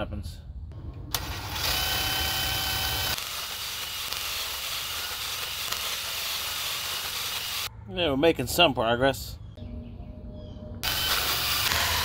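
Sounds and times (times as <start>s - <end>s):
cordless drill drilling into metal: 1.2s - 7.7s, 10.8s - 12.0s.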